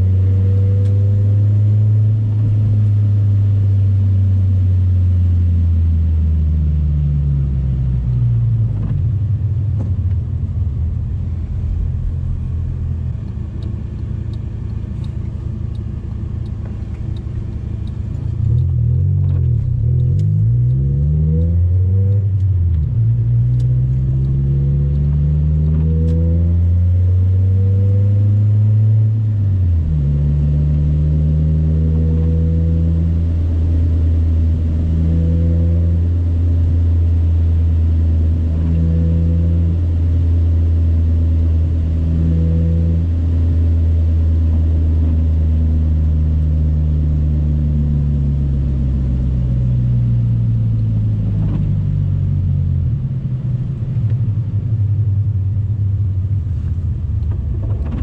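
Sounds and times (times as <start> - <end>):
car engine revving while driving: 0.0 - 58.0.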